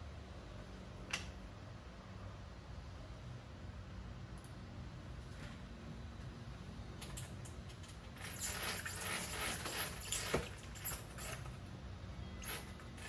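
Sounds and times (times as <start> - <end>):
bead chain clicking through roller: 7.0 - 11.7, 12.4 - 13.0.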